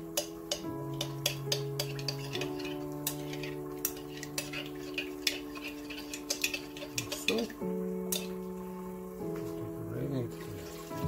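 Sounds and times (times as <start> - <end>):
spoon clinking against glass: 0.2 - 8.4.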